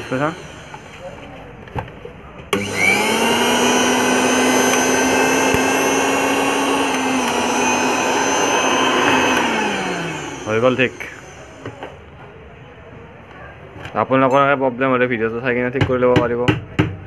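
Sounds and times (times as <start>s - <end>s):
electric motor whining: 0.0s - 1.3s, 2.5s - 11.9s.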